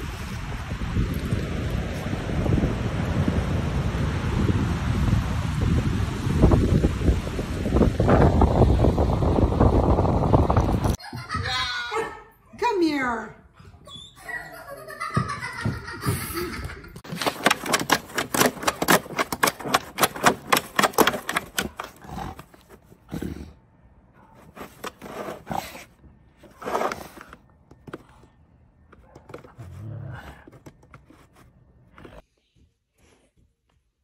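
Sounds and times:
shovel scraping snow: 24.4s - 27.4s.

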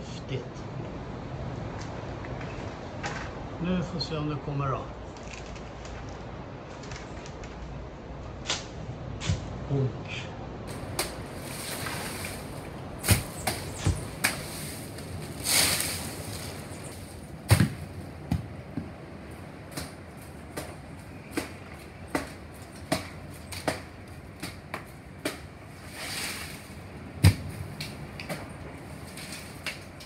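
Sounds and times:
sharp knocks in palm tree: 8.4s - 9.5s, 10.7s - 30.0s
rustling swish of fronds: 10.7s - 30.0s.

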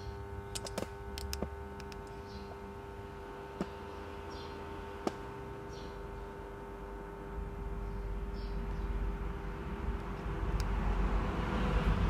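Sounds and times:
transformer buzzing: 0.0s - 12.0s
sharp clicks: 0.5s - 2.2s.

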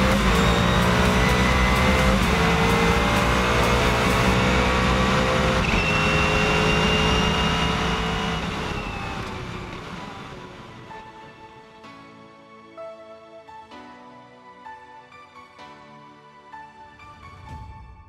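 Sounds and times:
race car engine accelerating: 0.0s - 11.4s.

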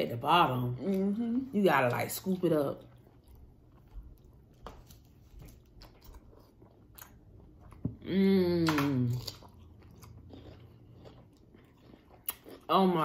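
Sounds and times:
chewing and lip smacking: 2.8s - 7.9s, 8.7s - 12.7s
woman humming mmm: 8.0s - 9.2s.

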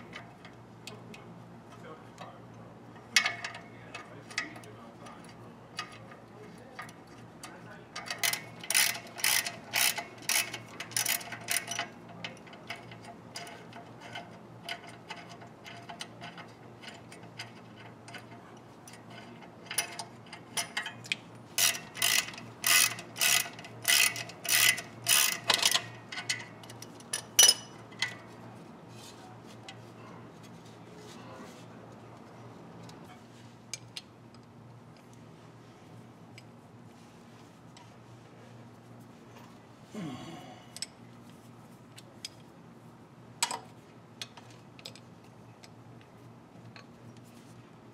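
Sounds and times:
ratchet wrench clicking: 8.0s - 18.3s, 18.9s - 28.2s.

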